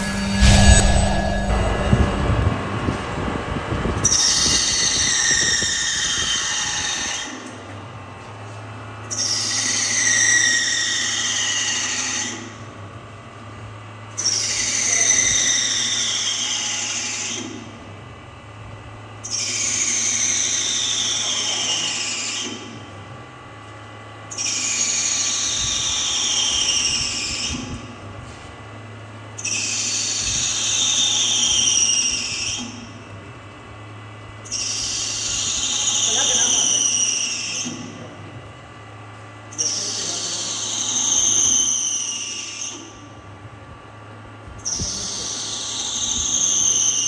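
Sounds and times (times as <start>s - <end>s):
lathe whine falling in pitch: 0.0s - 3.1s
steady low hum: 0.0s - 3.2s.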